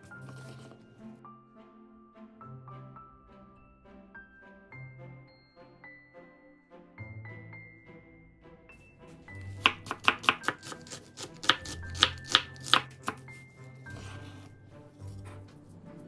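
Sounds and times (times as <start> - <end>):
soft background music: 0.0 - 16.0
knife striking cutting board: 9.4 - 13.4.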